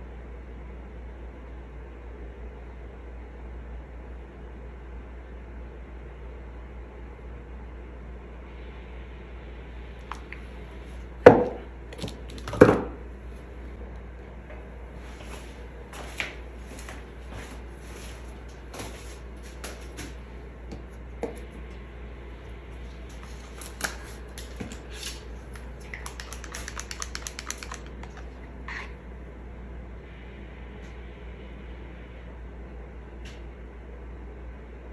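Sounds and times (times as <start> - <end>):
plastic cups clicking: 23.2 - 28.4
stick stirring paint ticking: 25.5 - 28.5.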